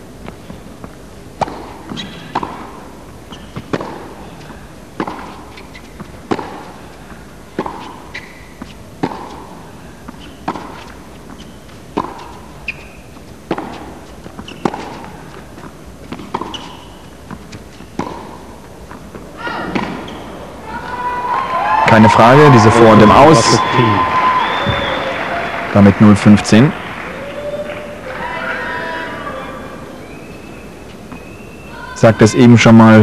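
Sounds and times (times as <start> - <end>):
shoes squeaking on court: 0.2 - 20.5, 29.9 - 31.9
tennis ball bouncing: 0.2 - 20.5
racket striking tennis ball: 1.3 - 20.2.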